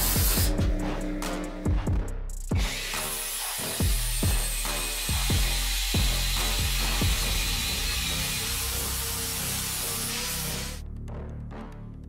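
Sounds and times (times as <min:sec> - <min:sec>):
angle grinder grinding steel: 0:02.6 - 0:10.8.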